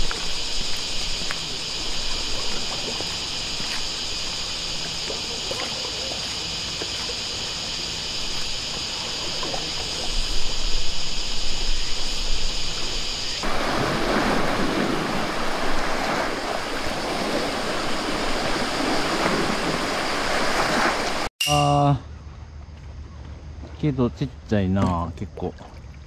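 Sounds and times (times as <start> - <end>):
light water splashes: 0.0 - 11.0, 12.8 - 21.3, 24.8 - 26.0
steady high-pitched hiss: 0.0 - 25.4
small waves lapping on shore: 12.8 - 21.3.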